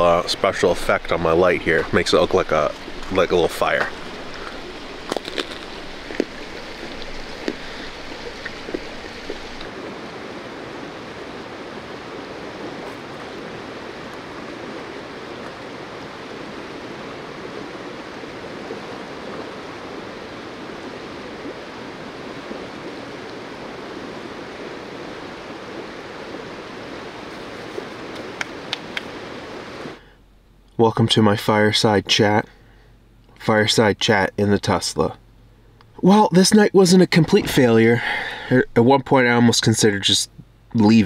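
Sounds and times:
creek flowing: 0.0 - 30.1.

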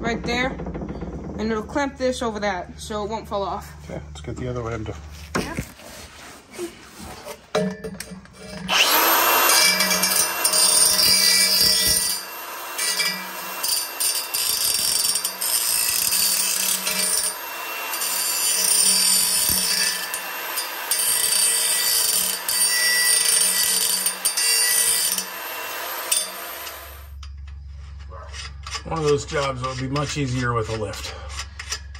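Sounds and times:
angle grinder grinding metal: 8.0 - 31.9
grinder motor whine: 8.5 - 27.2.

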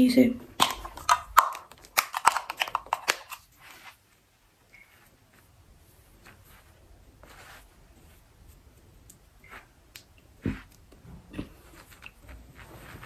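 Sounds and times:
blush stick rubbing on skin: 4.8 - 10.9, 11.6 - 13.0.

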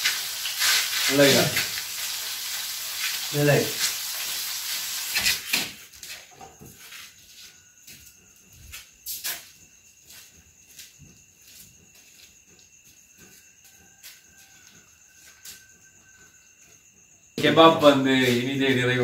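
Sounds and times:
meat sizzling in a frying pan: 0.0 - 5.7
faint insect chirping: 0.0 - 19.0.

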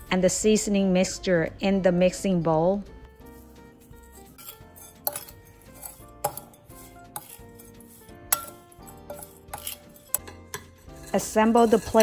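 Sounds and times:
metal spoon scraping ceramic bowl: 3.3 - 12.0.

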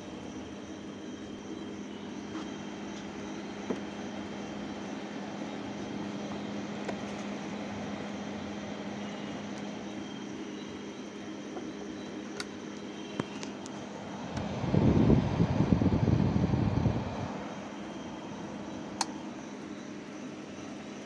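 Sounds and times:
amplifier hum and hiss: 0.0 - 21.0
cables and plugs clicking: 12.3 - 14.5, 18.9 - 19.2.

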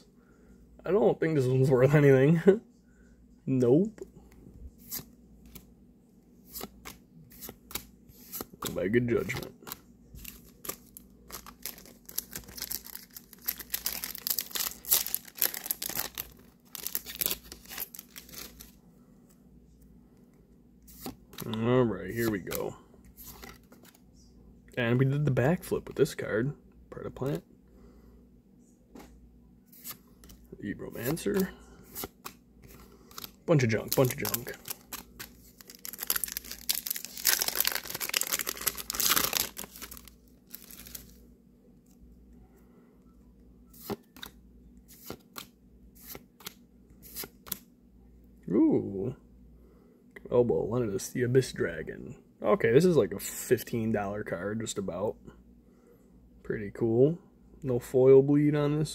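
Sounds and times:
foil pack tearing and crinkling: 10.2 - 18.7, 33.1 - 41.2.

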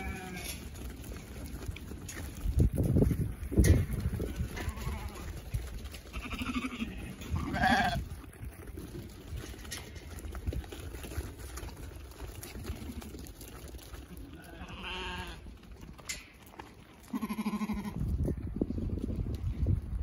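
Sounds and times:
lambs bleating: 0.0 - 0.6, 4.3 - 5.4, 6.1 - 8.1, 14.4 - 15.4, 17.1 - 18.0
hooves on dirt: 0.0 - 20.0
wind buffeting microphone: 1.3 - 11.3, 17.2 - 20.0.

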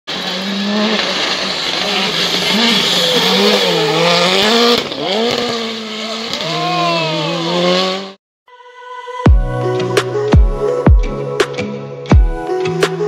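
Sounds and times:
rally car engine revving: 0.1 - 8.2.

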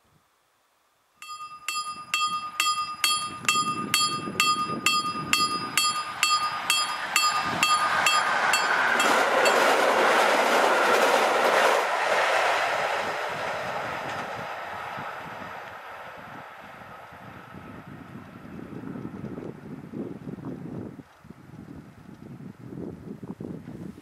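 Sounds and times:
level crossing warning bell: 1.2 - 10.0
approaching electric train: 1.2 - 22.6.

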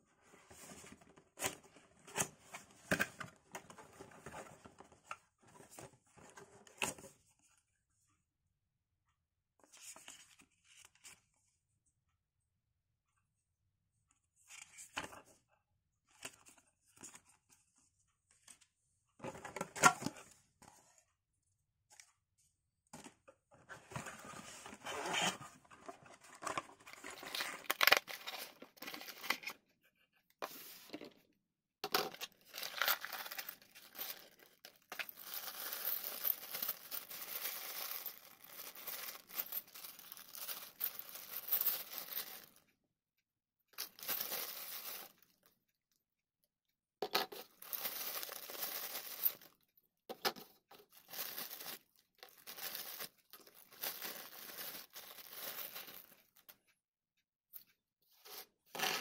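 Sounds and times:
packaging crinkling and rustling: 26.2 - 29.5, 32.1 - 42.5, 47.5 - 49.5, 50.9 - 56.2.

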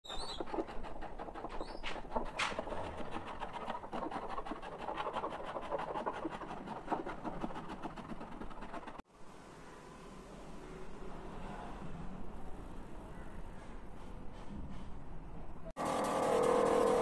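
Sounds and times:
sandpaper scratching on wood: 0.1 - 9.0, 15.8 - 17.0.

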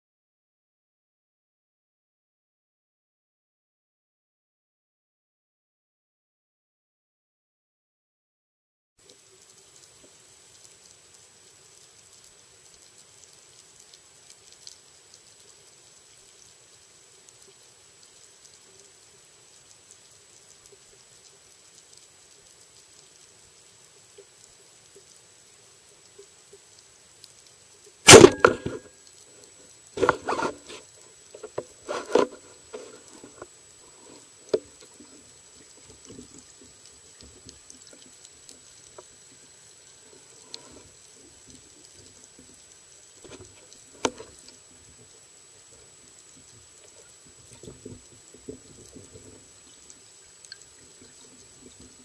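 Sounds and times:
sharp click: 28.1 - 28.9
speargun firing crack and rattle: 28.1 - 28.9.

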